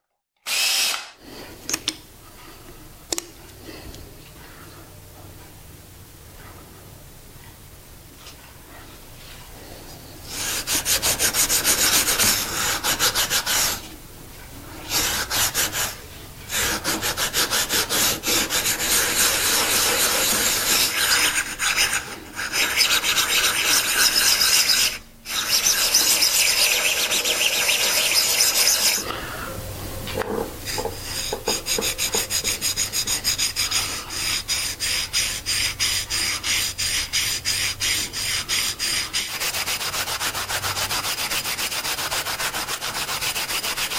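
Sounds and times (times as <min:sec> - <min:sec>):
sandpaper rubbing on metal: 0:10.3 - 0:13.9, 0:14.9 - 0:29.1, 0:30.7 - 0:43.9.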